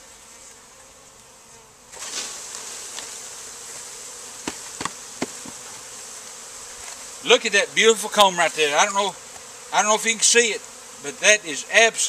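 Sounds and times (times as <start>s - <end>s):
honey bees buzzing: 0.0s - 12.0s
sharp knocks: 4.4s - 5.6s.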